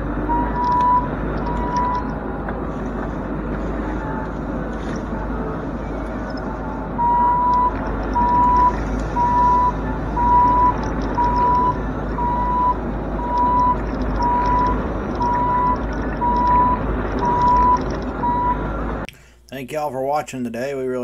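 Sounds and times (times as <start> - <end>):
excavator travel alarm beeping: 0.0 - 2.8, 5.0 - 18.8
diesel engine running: 0.0 - 19.1.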